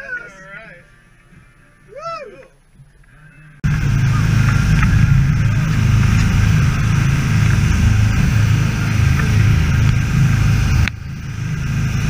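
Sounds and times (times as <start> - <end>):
boat engine droning: 3.6 - 12.0
wind noise: 3.6 - 12.0
rushing water: 3.7 - 12.0.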